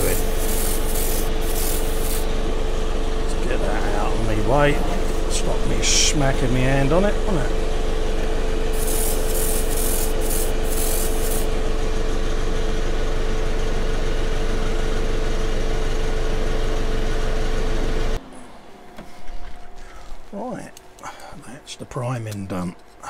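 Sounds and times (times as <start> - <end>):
airbrush air hisses: 0.0 - 2.3, 8.7 - 11.5
extractor fan hum: 0.0 - 23.0.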